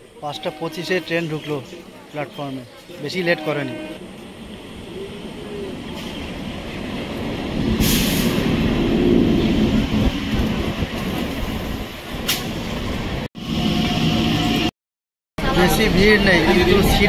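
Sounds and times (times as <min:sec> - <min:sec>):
train wheels rumbling on rails: 0:04.0 - 0:14.7.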